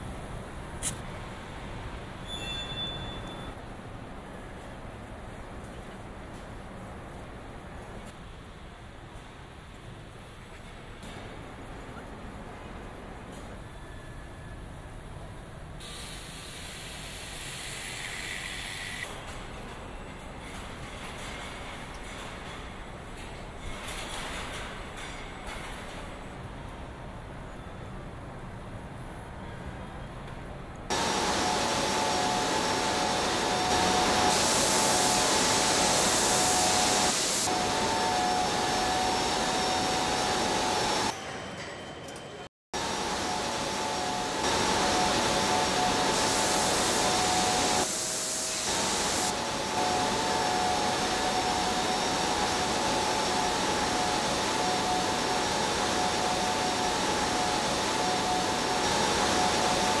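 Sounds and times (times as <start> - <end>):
factory machinery hiss: 15.8 - 19.1, 30.9 - 41.2, 42.8 - 60.0
high machine hums: 30.9 - 41.2, 42.8 - 60.0.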